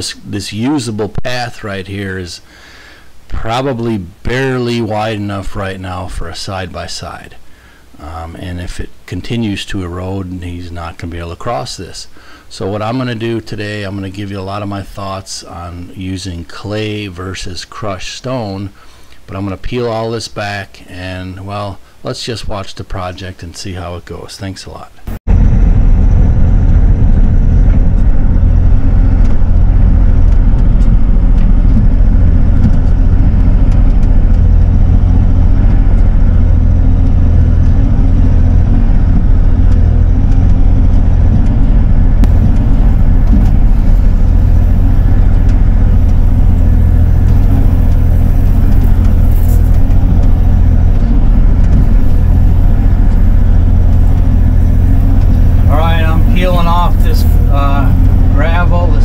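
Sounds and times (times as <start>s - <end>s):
excavator diesel engine droning: 25.1s - 59.0s.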